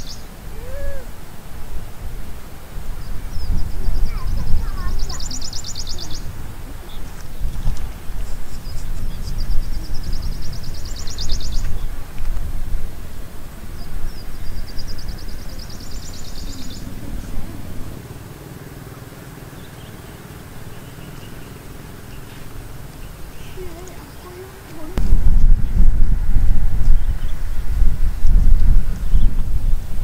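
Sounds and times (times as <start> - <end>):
river low rumble: 0.0 - 30.0
high rapid trilling call: 3.6 - 7.2, 14.6 - 22.4.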